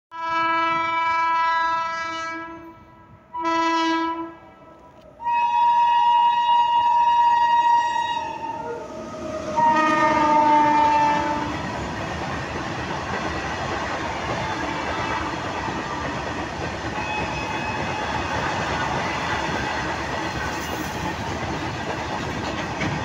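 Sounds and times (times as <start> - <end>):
locomotive horn blasts: 0.1 - 8.8, 9.5 - 11.7, 14.4 - 16.1.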